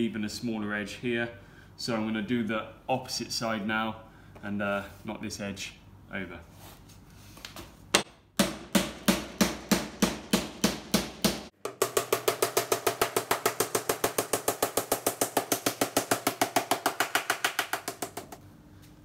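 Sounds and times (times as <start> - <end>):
hammer striking metal panel: 8.0 - 18.4.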